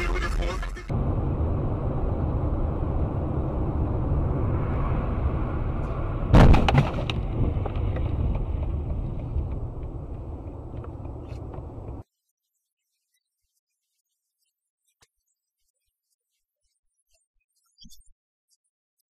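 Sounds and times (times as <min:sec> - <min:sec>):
car road and engine rumble: 0:00.9 - 0:12.0
car collision crash: 0:01.0 - 0:12.0.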